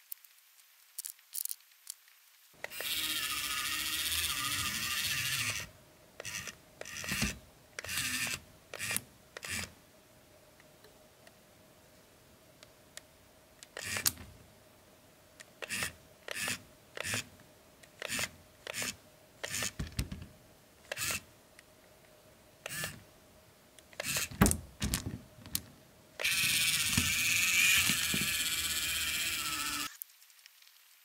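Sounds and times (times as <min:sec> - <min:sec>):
steady hissing noise: 0:00.0 - 0:31.0.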